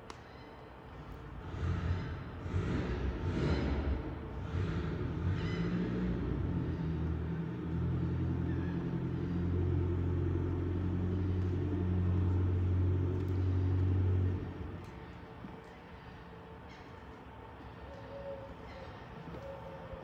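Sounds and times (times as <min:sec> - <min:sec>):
boat engine idling: 0:01.2 - 0:15.3.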